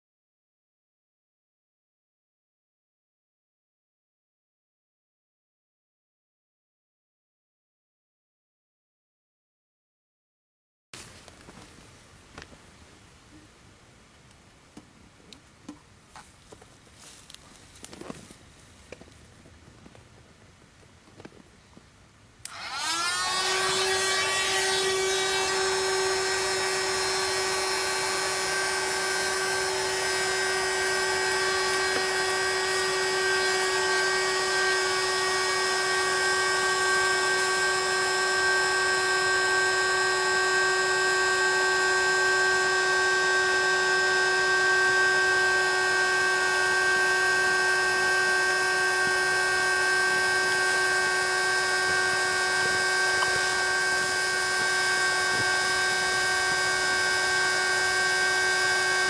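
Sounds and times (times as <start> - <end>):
electric air pump motor whine: 22.4 - 59.0.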